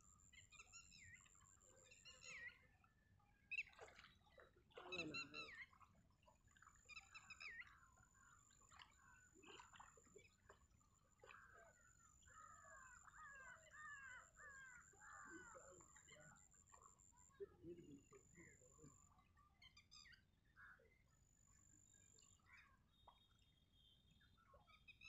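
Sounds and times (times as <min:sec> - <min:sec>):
faint crow caws: 0:11.2 - 0:16.4.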